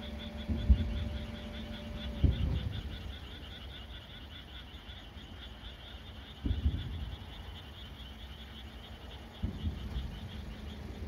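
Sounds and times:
frogs calling in chorus: 0.0 - 11.0
distant firework boom: 0.4 - 1.0, 2.1 - 3.0, 6.3 - 7.6, 9.3 - 10.9.

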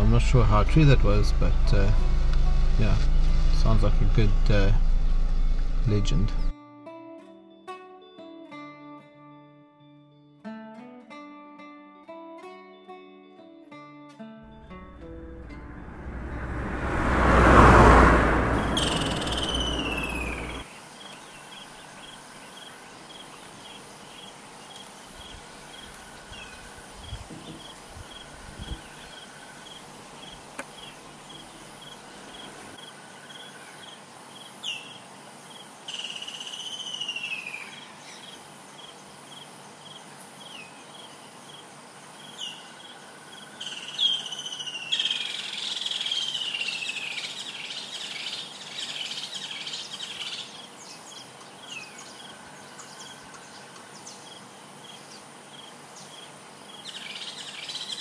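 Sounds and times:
vehicle driving past on gravel: 14.5 - 20.6
birds whistling: 18.6 - 20.6.

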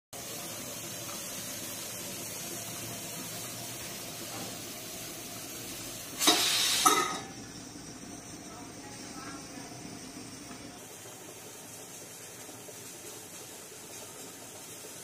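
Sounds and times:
pressure cooker whistling tone: 0.2 - 10.6
steam hissing from pressure cooker: 0.2 - 15.0.

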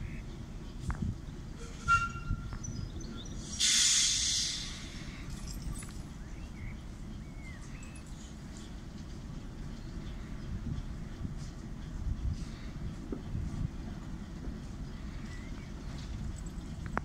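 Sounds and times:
air hiss from diesel locomotive: 3.4 - 5.4, 11.2 - 13.7.

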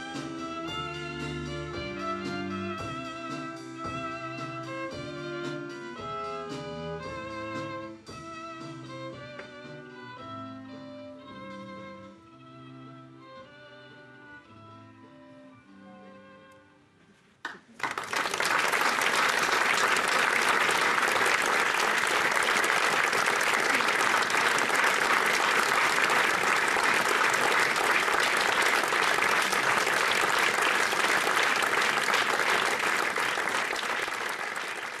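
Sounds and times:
audience applauding: 17.5 - 35.0.

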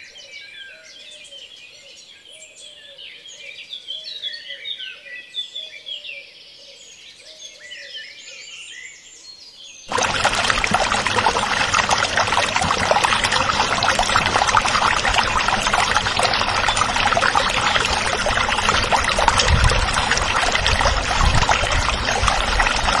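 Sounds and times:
water pouring into plastic bowl: 9.9 - 23.0.

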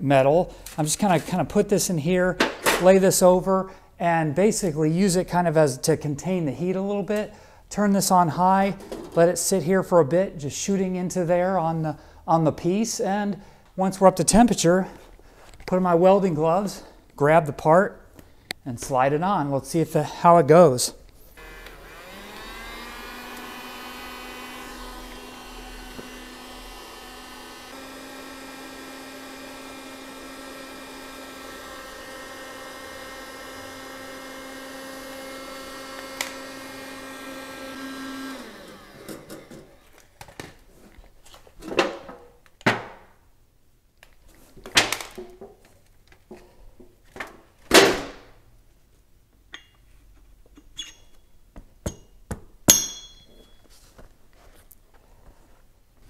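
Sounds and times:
heat gun fan whine: 21.4 - 39.8.

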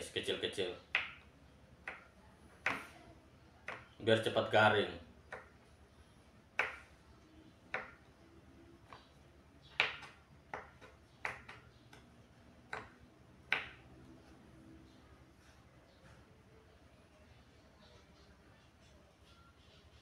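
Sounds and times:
knife tapping on cutting board: 7.7 - 8.0, 12.7 - 13.8.

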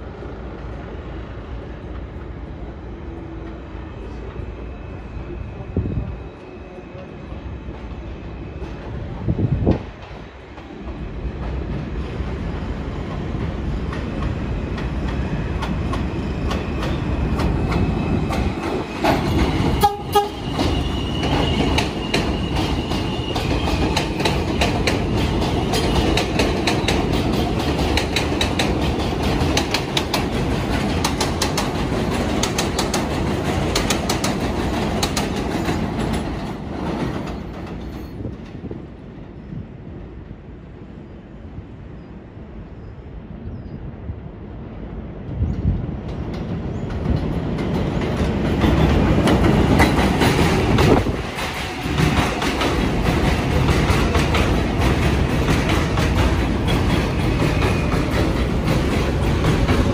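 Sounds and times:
train high whine: 0.0 - 45.5, 46.6 - 59.9
train wheels clicking over rail joints: 8.6 - 38.8, 45.5 - 59.9.

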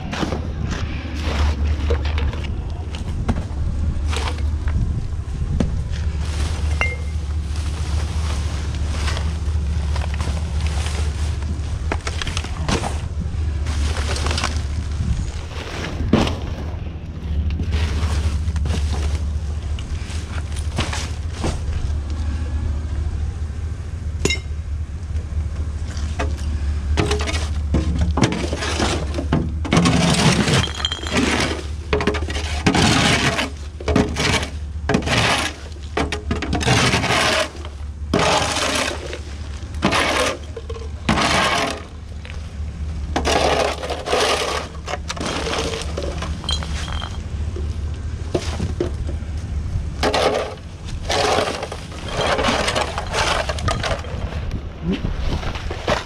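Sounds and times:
truck engine idling: 0.0 - 54.9
debris clinking: 6.6 - 7.4, 25.9 - 42.4, 43.1 - 47.7, 50.0 - 54.3
shovel scraping on brick: 28.2 - 35.8, 36.4 - 42.0, 43.2 - 47.1, 50.0 - 54.4.

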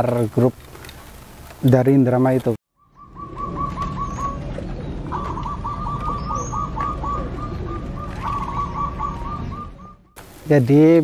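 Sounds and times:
doves cooing in staccato notes: 2.9 - 10.2.

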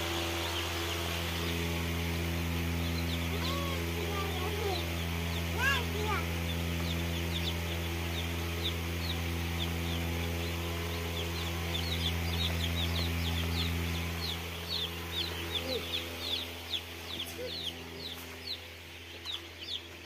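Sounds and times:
chicks cheeping: 0.0 - 20.0
steady low hum: 0.0 - 20.0.

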